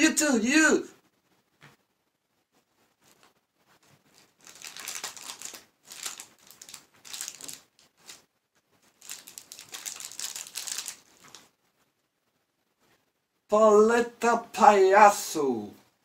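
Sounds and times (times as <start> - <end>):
plastic wrapper crinkling: 3.0 - 11.5.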